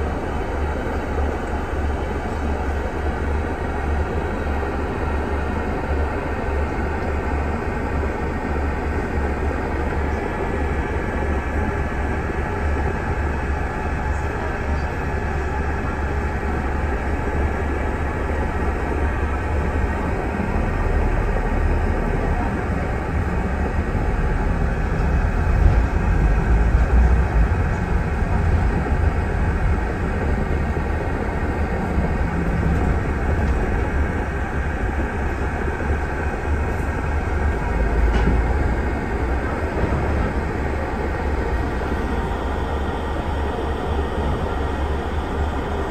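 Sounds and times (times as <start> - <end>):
bus engine rumble: 0.0 - 45.9
road noise: 0.0 - 45.9.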